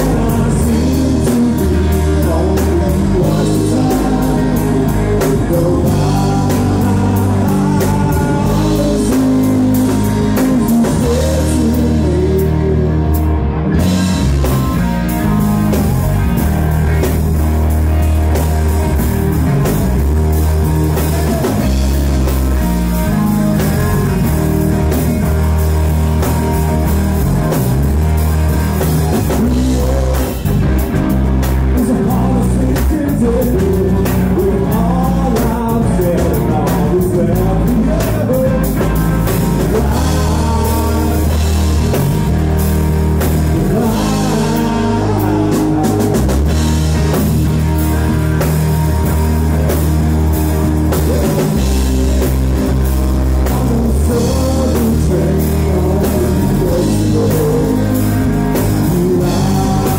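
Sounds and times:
person singing: 0.0 - 13.4, 28.8 - 42.5, 43.2 - 47.6, 50.7 - 59.9
live rock band playing: 0.0 - 59.9.

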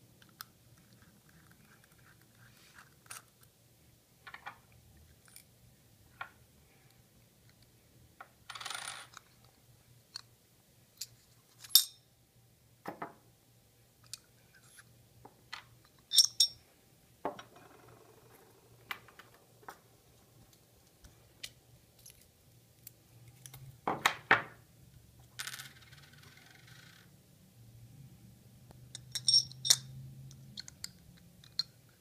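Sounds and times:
steel parts clinking: 11.0 - 12.0, 16.1 - 16.6, 29.0 - 29.9.

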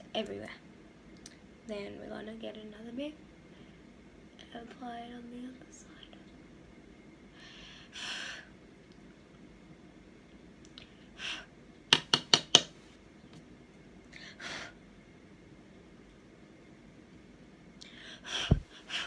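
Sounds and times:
brush tapping on palette: 11.9 - 12.7.

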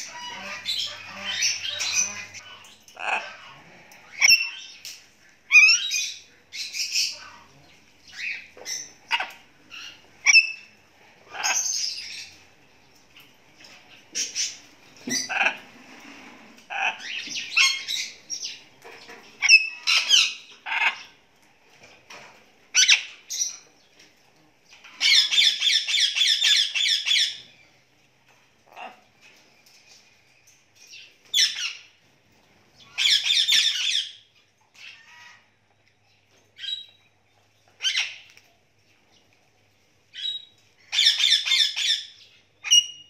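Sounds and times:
parrots squawking and chirping: 0.0 - 12.5, 13.1 - 21.2, 21.8 - 23.7, 24.7 - 27.6, 28.6 - 29.2, 30.8 - 32.0, 32.8 - 35.6, 36.6 - 37.0, 37.7 - 38.5, 40.1 - 43.0.

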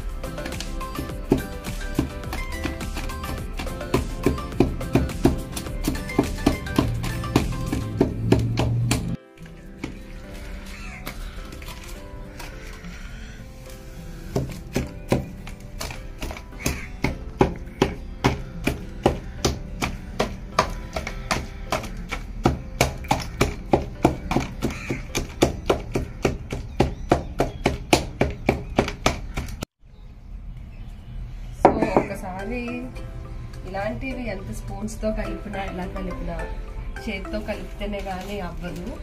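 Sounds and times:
stone pestle pounding in metal plate: 0.4 - 9.2, 14.3 - 29.6.

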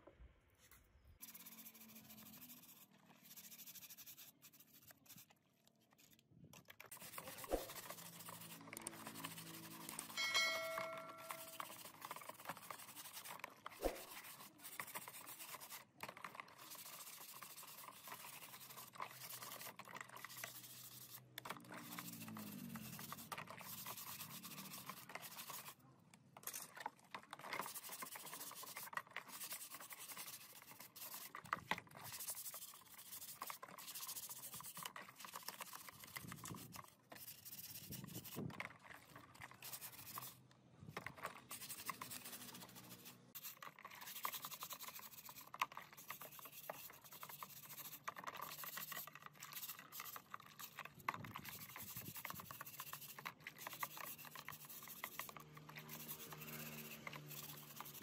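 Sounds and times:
brush scrubbing in soapy water: 6.8 - 25.8, 27.4 - 40.4, 41.1 - 58.0.

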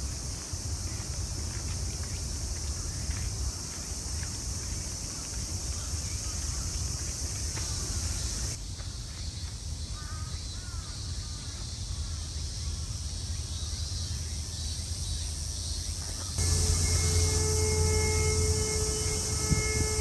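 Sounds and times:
high-pitched insect chorus: 0.0 - 20.0
wind rumble on microphone: 16.4 - 20.0.

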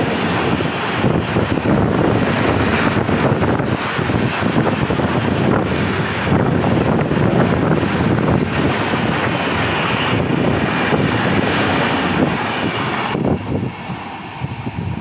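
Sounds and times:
train wheels rumbling on rail: 0.0 - 15.0
wind buffeting microphone: 0.0 - 15.0.

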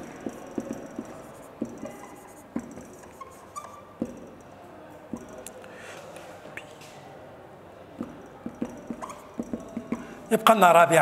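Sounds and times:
marker squeaking on whiteboard: 0.0 - 5.6, 8.0 - 10.6.

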